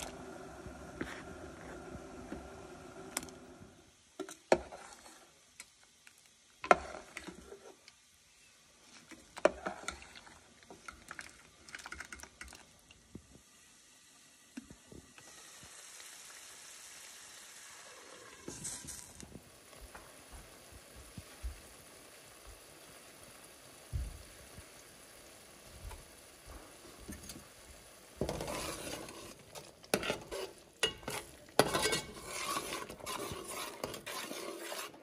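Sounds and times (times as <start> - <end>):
food sizzling in pot: 0.0 - 35.0
metal spoon clinking against pot: 30.8 - 32.5.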